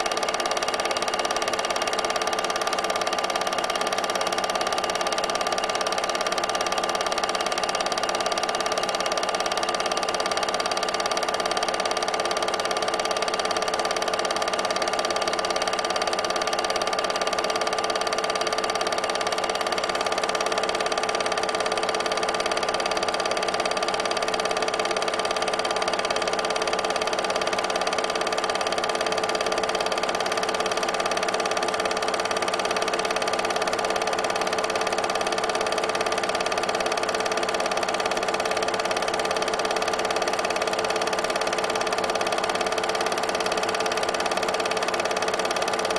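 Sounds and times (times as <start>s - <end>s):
film projector whirring: 0.0s - 45.9s.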